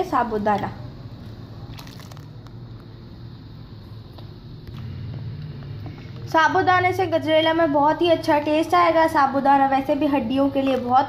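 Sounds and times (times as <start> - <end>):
small splashes of pouring liquid: 1.6 - 2.4.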